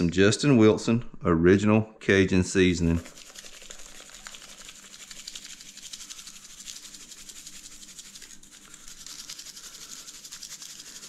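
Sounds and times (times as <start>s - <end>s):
seasoning shaker rattle: 2.8s - 11.0s.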